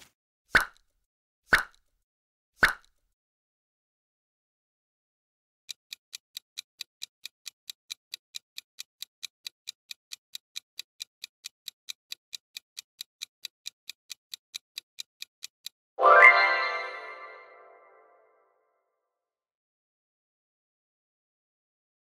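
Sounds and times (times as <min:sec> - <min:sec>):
clock-like ticking: 0:05.7 - 0:15.8
bright chime: 0:16.0 - 0:18.0.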